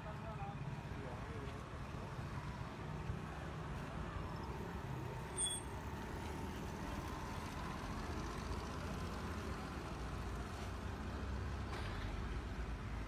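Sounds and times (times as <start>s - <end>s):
road vehicle engine rumble: 0.0s - 13.0s.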